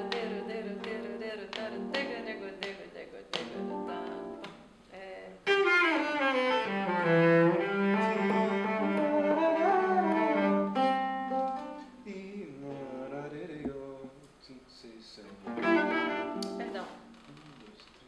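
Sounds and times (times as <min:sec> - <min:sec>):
bowed cello: 0:05.4 - 0:11.9, 0:15.5 - 0:17.0.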